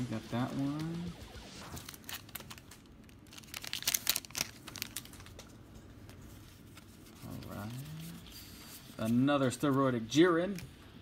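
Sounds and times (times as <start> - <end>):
wrapper tearing and crinkling: 1.4 - 5.5.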